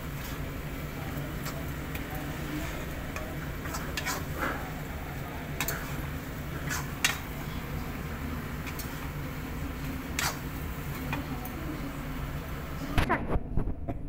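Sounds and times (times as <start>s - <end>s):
spatula scraping a pan: 3.5s - 4.7s, 5.6s - 7.3s.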